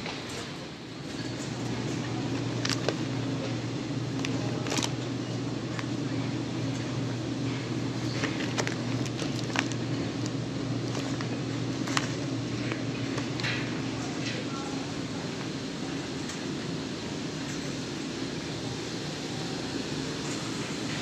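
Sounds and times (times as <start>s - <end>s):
machine hum: 0.0s - 21.0s
plastic packaging crinkling: 8.2s - 13.4s.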